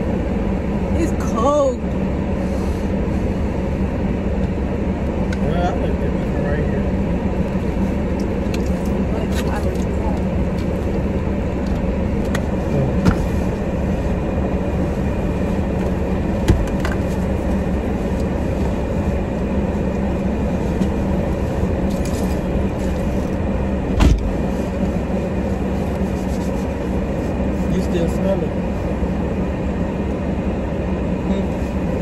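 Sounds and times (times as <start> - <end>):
car engine idling: 0.0 - 32.0
loud thump: 24.0 - 24.3.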